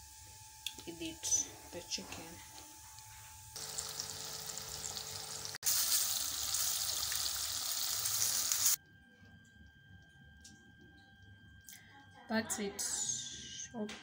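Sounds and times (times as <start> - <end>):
chicken deep frying in oil: 3.6 - 8.8.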